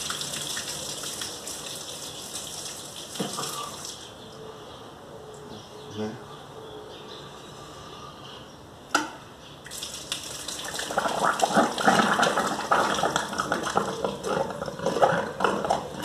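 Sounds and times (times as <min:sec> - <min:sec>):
water pouring and splashing: 0:00.0 - 0:04.0, 0:09.7 - 0:16.0.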